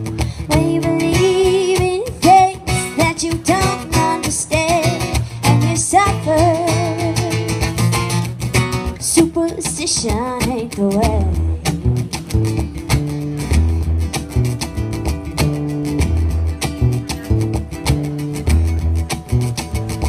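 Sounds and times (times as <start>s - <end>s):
strummed acoustic guitar: 0.0s - 20.0s
woman singing with vibrato: 0.4s - 7.5s, 9.0s - 11.6s.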